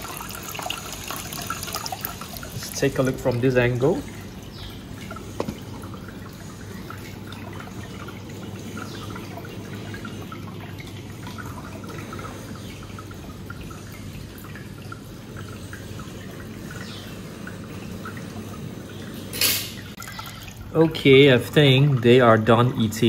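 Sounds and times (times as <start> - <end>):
water trickling and dripping: 0.0 - 23.0.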